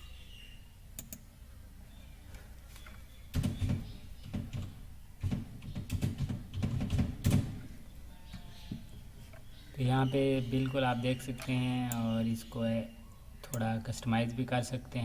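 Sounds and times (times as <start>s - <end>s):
mouse clicks: 1.0s - 1.3s.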